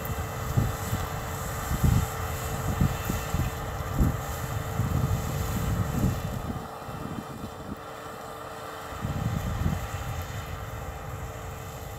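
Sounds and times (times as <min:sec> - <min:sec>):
wind buffeting microphone: 0:00.0 - 0:07.8, 0:09.0 - 0:11.9
cotton picker machine drone: 0:00.0 - 0:11.9.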